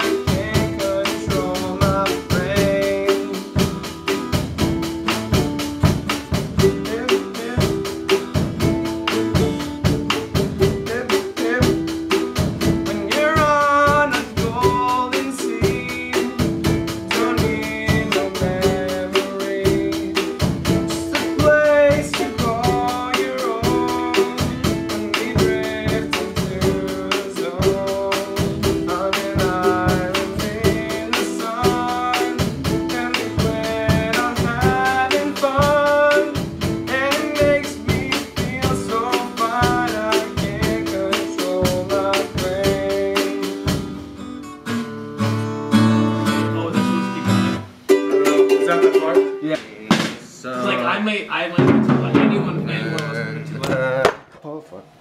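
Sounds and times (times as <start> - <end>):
person singing: 0.0 - 4.3, 6.4 - 43.9
drum kit beat: 0.0 - 54.3
guitar: 0.0 - 54.3.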